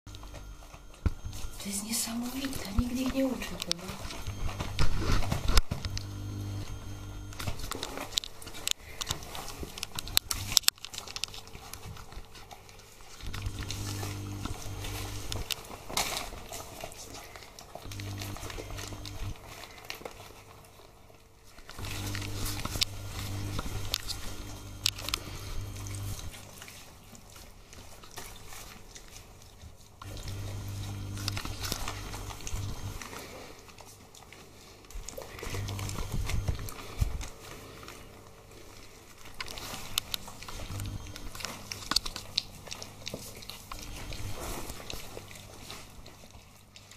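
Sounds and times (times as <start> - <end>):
low hum: 0.1 - 10.7, 17.7 - 19.6, 21.8 - 26.4
puppies lapping and chewing: 0.1 - 46.9.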